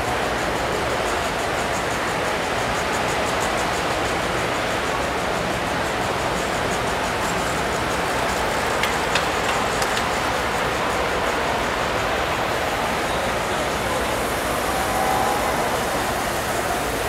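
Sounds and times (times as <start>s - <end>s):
model trains rolling rumble: 0.0s - 17.0s
sharp track clicks: 7.7s - 10.7s.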